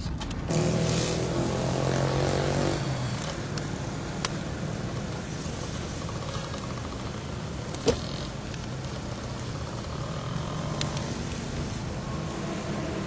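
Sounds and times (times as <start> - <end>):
car engine idling: 3.4 - 12.0
car door click: 7.7 - 8.1.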